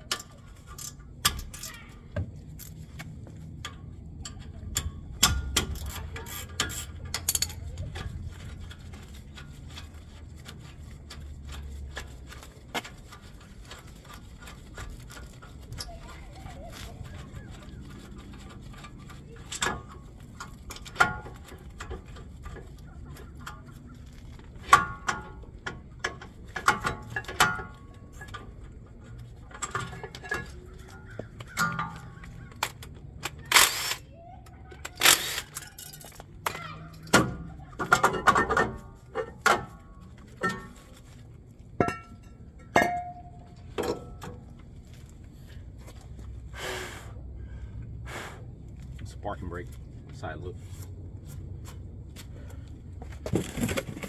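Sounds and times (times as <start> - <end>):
low steady hum: 0.0 - 54.0
metal tools clanking: 3.6 - 12.5, 13.1 - 33.9, 34.8 - 44.6.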